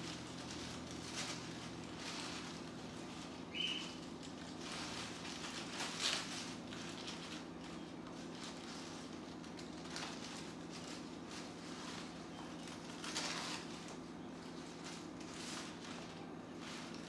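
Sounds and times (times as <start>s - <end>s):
bird tearing and crinkling paper: 0.0s - 17.0s
steady low hum: 0.0s - 17.0s.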